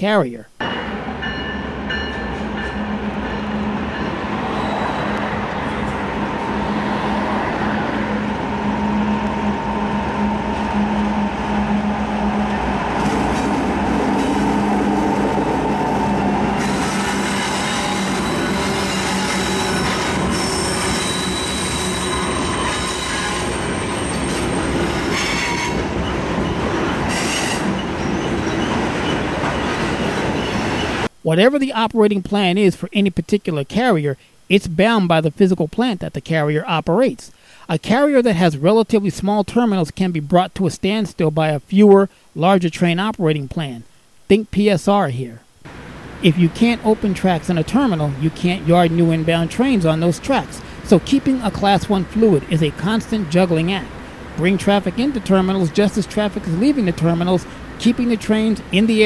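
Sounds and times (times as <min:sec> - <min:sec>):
diesel locomotive engine drone: 0:00.6 - 0:31.1, 0:45.7 - 0:59.0
train wheel squeal: 0:00.7 - 0:05.3, 0:16.6 - 0:31.0.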